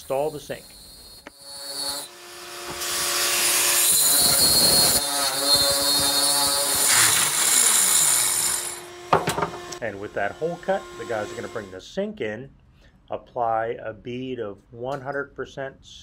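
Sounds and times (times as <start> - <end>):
angle grinder motor whining: 0.0 - 11.7
grinding hiss cutting stone: 0.0 - 11.7.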